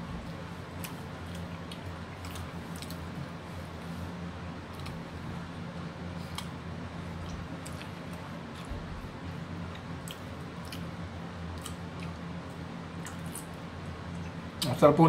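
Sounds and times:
kitchen vent fan humming: 0.0 - 15.0
faint chewing: 0.1 - 5.5, 6.1 - 14.7
small clicks of eating: 0.2 - 3.1, 6.2 - 8.7, 9.3 - 10.9, 11.5 - 14.7.

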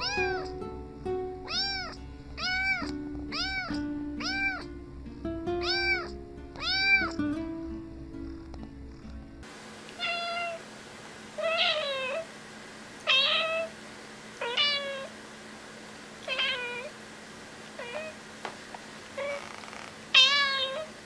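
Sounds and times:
cat meowing: 0.0 - 0.6, 1.4 - 4.7, 5.6 - 7.2, 10.0 - 10.6, 11.4 - 12.3, 13.1 - 13.7, 14.4 - 15.1, 16.3 - 16.9, 17.8 - 18.2, 19.2 - 20.9.

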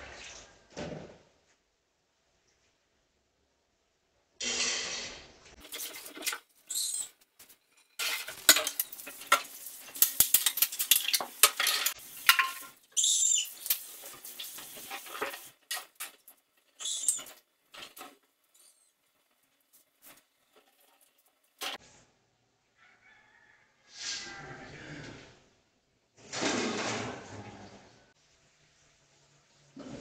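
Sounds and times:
dishes and utensils clinking: 5.6 - 12.9.

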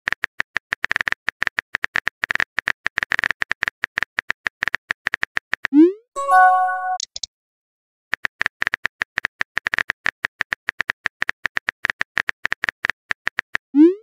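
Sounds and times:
phone keyboard clicks: 6.8 - 7.3.

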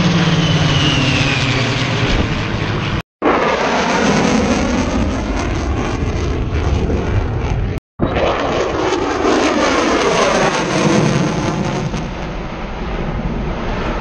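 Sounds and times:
aircraft engine flying past: 0.0 - 14.0.

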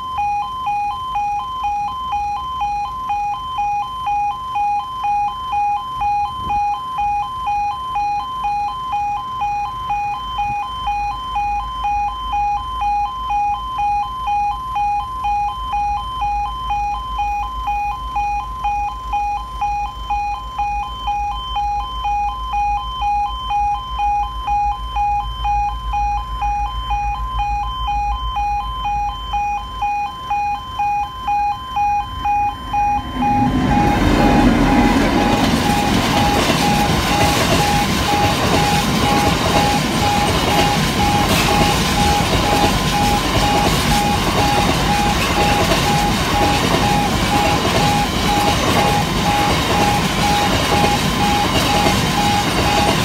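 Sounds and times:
level crossing two-tone alarm: 0.0 - 53.0
low rumble: 31.9 - 40.2.

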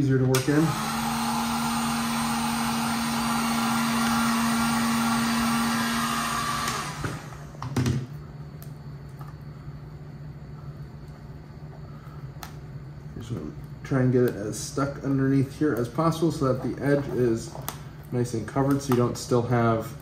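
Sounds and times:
heat gun blowing: 0.3 - 7.6.

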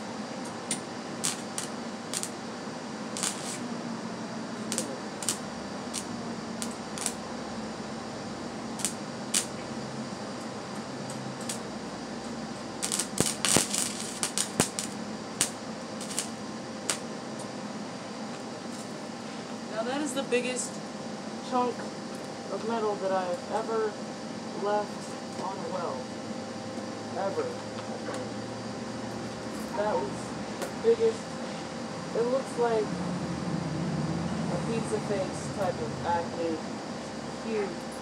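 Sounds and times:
welder arc crackling and popping: 0.0 - 17.6, 18.3 - 19.6
steady hum: 0.0 - 38.0.

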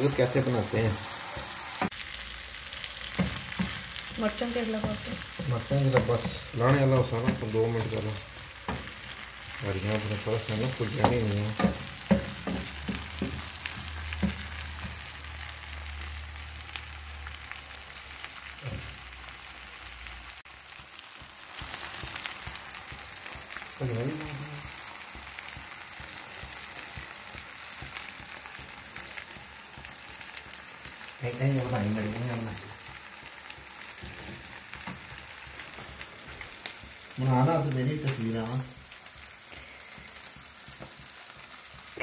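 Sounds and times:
curry sizzling and bubbling: 0.0 - 42.0
person speaking: 9.6 - 11.8.

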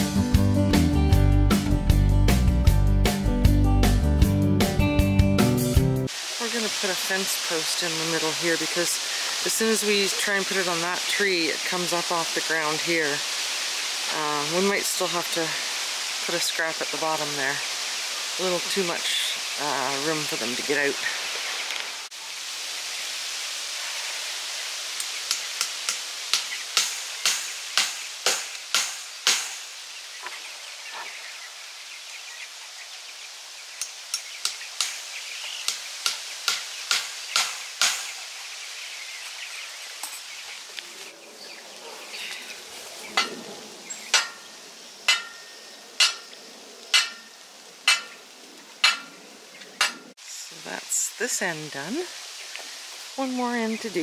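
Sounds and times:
steady hiss: 6.1 - 54.0
hammer strikes: 25.3 - 29.6, 35.7 - 38.1, 44.1 - 44.4, 45.1 - 46.2, 47.0 - 47.3, 47.9 - 48.1, 48.8 - 49.1.

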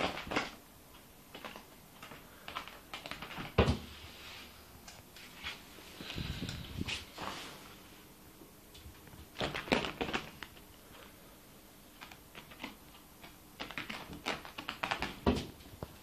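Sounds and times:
kitten claws scratching carpet: 11.9 - 15.2.

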